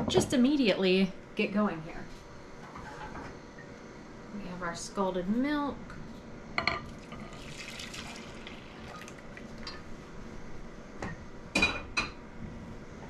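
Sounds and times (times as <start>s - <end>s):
milk pouring into a bowl: 6.9s - 9.7s.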